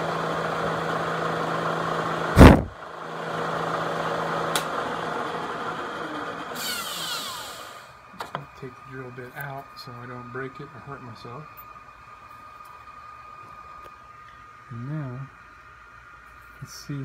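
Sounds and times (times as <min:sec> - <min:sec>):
drilling machine motor humming: 0:00.0 - 0:11.6.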